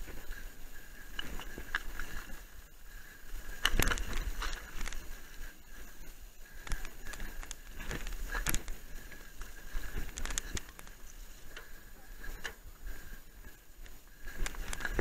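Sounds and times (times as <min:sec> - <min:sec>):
bike clicks and rattles: 0:00.0 - 0:15.0
tyres crunching over loose stones: 0:01.0 - 0:02.6, 0:03.5 - 0:12.7, 0:13.8 - 0:15.0.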